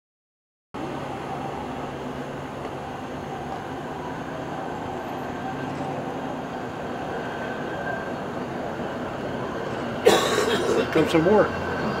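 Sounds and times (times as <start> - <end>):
steel wheels on rails: 0.8 - 10.0.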